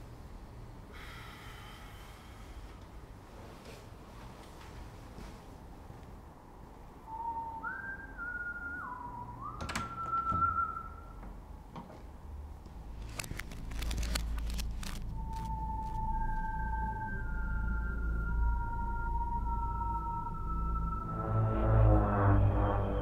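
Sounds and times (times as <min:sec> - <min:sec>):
person whistling: 0:07.1 - 0:11.2, 0:15.1 - 0:21.8
low rumble: 0:12.8 - 0:23.0.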